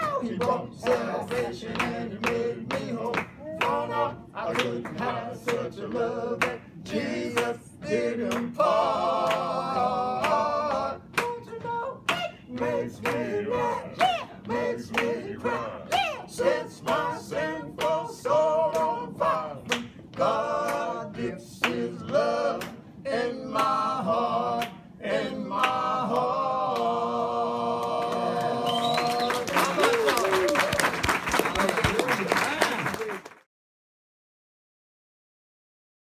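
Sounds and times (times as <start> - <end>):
men singing in harmony: 0.0 - 29.3
hand claps: 12.1 - 13.3, 19.7 - 20.0, 28.4 - 33.4.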